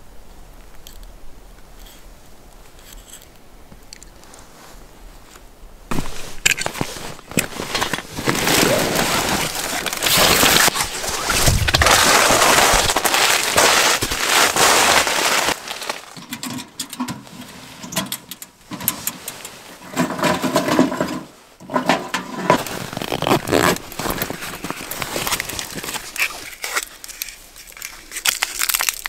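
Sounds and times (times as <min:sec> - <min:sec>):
canvas backpack rustling and scraping: 0:04.2 - 0:16.2, 0:18.7 - 0:28.1.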